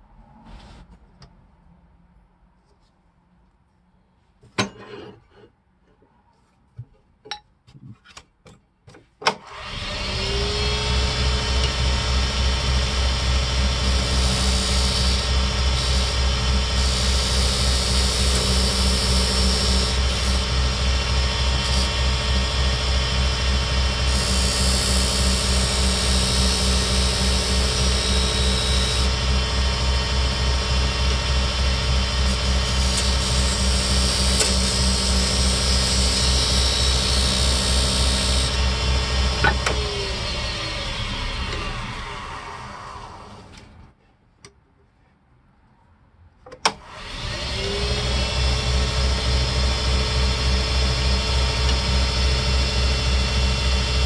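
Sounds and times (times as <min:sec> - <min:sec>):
wood lathe humming: 0:09.6 - 0:43.4, 0:47.0 - 0:54.0.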